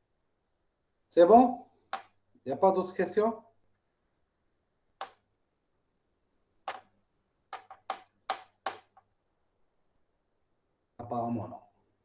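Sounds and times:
sharp clicks and taps: 5.0s - 5.3s, 6.6s - 9.1s.

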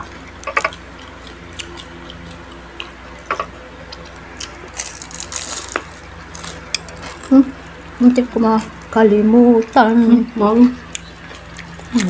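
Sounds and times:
chewing clicks and smacks: 0.0s - 7.3s, 10.8s - 12.0s
steady low hum: 0.0s - 12.0s
scratchy crunch: 0.4s - 7.4s.

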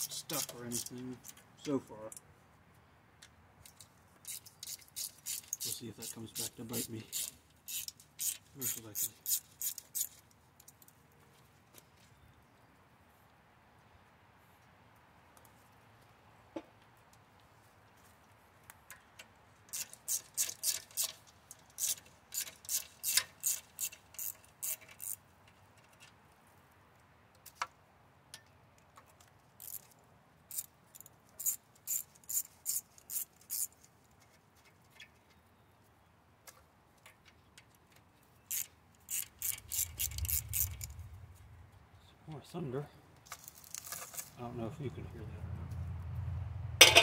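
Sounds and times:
socket ratchet clicking: 7.1s - 10.2s, 21.8s - 25.2s, 38.5s - 41.1s
metal knocks: 46.8s - 47.0s.

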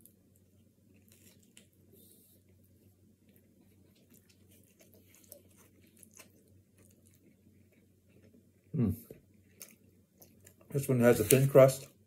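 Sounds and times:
low steady hum: 0.0s - 12.0s
mouth chewing: 3.2s - 10.7s.

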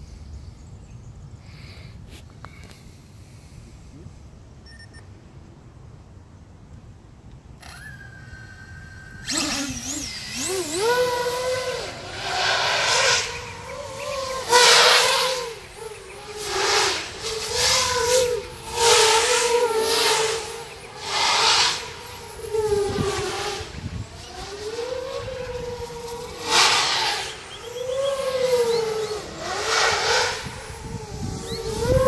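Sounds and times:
drone motors whining: 7.6s - 32.0s.

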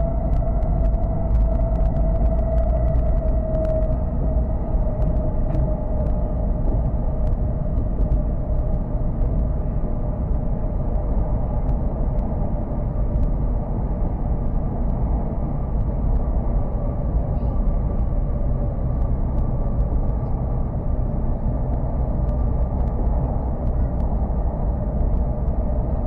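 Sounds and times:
faint hum: 0.0s - 26.0s
train cabin low rumble: 0.0s - 26.0s
light ticks: 21.7s - 25.7s.

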